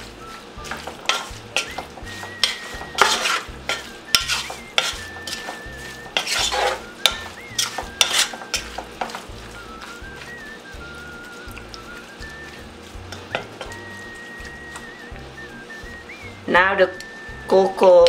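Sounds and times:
wooden spoon scraping metal pot: 0.7s - 9.3s.

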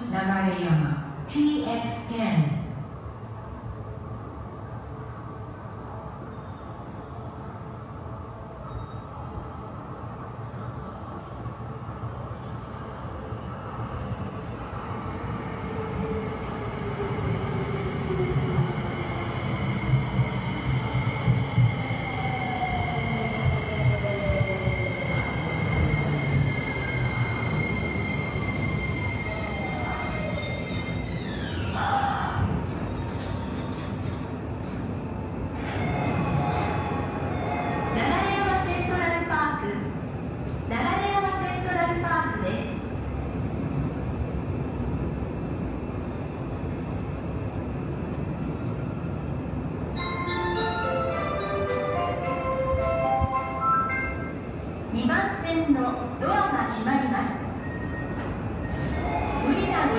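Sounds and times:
train wheels rumbling on rails: 13.7s - 37.4s.

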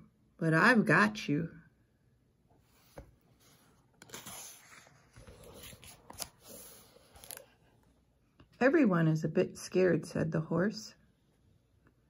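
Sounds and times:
book pages turning: 2.6s - 7.9s.

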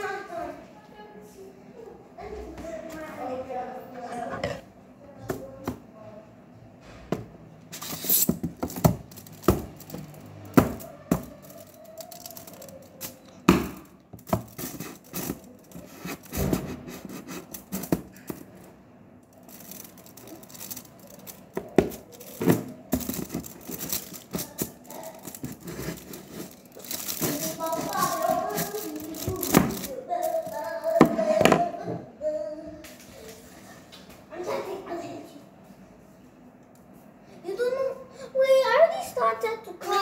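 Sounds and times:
foil crinkling and tearing: 7.8s - 13.2s, 14.2s - 18.3s, 19.4s - 30.7s.

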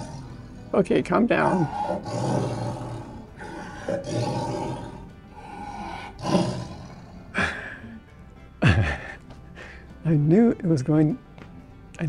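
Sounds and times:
big cat roars over loudspeaker: 0.0s - 0.8s, 1.4s - 7.2s.

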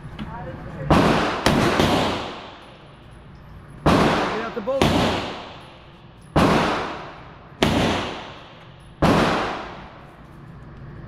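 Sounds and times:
handgun shots echoing: 0.9s - 2.8s, 3.8s - 10.0s.

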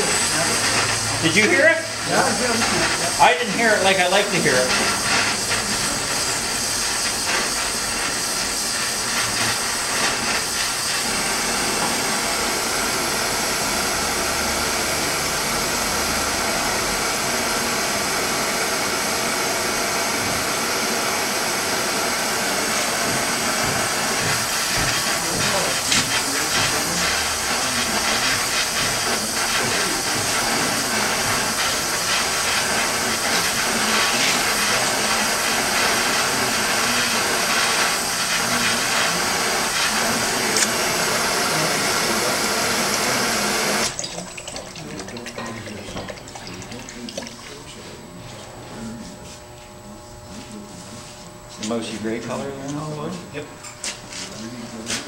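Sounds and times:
torch flame hissing: 0.0s - 44.0s.

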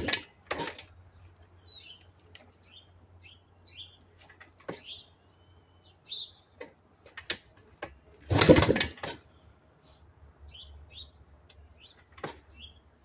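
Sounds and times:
songbirds chirping: 0.0s - 13.0s
motorcycle kickstart without catching: 8.2s - 9.2s.

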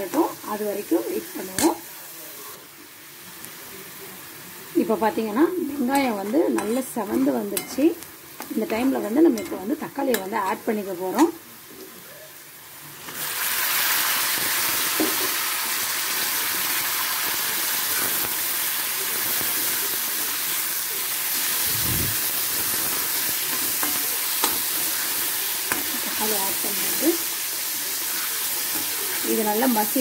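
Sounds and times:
tomatoes sizzling in hot oil: 0.0s - 30.0s
spoon stirring and scraping: 5.2s - 10.6s.

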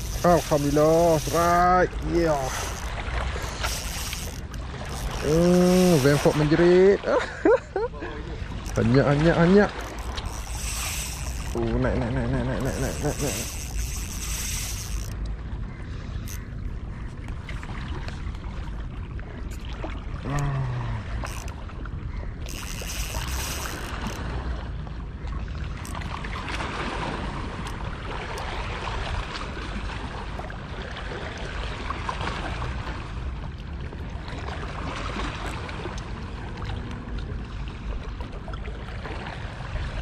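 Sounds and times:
sea water hiss: 0.0s - 4.3s
fishing reel drag hissing: 0.0s - 6.6s, 9.7s - 11.7s, 12.5s - 15.2s, 21.2s - 21.5s, 22.4s - 24.2s.

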